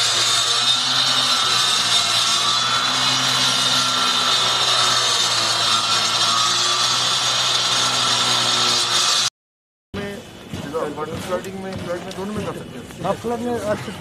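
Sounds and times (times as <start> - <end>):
disc power cutter cutting: 0.0 - 9.3.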